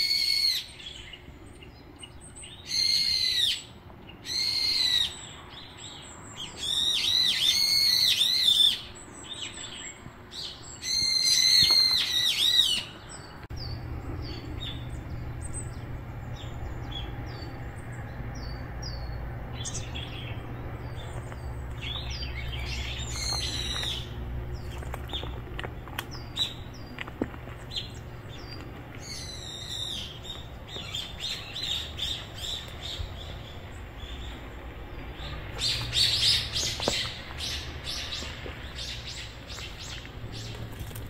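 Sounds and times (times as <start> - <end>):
birds chirping: 0.0 - 41.0
low hum: 13.4 - 41.0.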